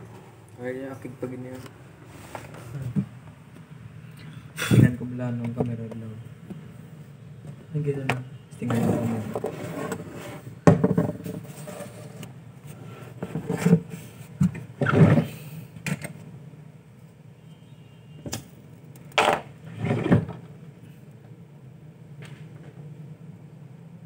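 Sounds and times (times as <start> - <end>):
objects knocked on workbench: 10.6 - 11.4, 19.2 - 19.5.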